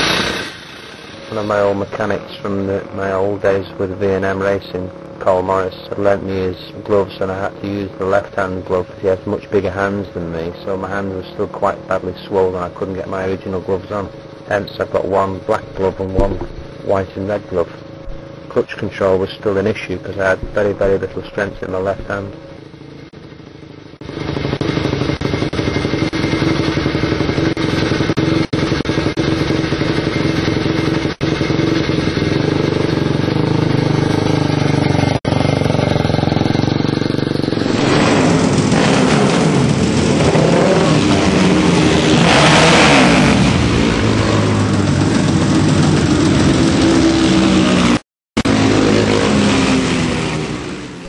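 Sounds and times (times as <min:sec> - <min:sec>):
motorcycle engine revving: 0:00.0 - 0:51.0.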